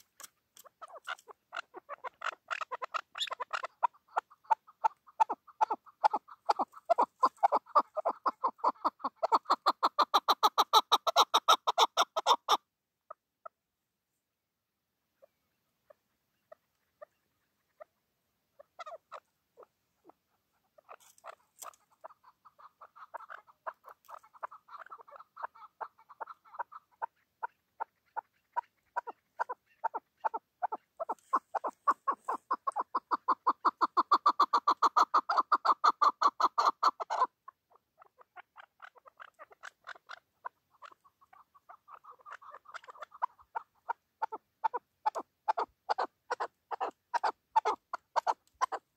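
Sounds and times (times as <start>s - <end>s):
partridge clucking calls: 0.0s - 13.6s, 15.2s - 48.9s.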